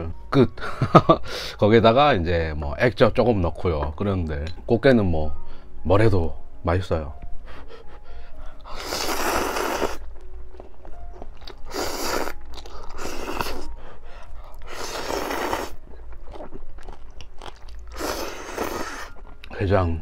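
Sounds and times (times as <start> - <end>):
noodles slurped: 8.7 - 10.0, 11.5 - 13.7, 14.7 - 15.8, 17.4 - 19.2.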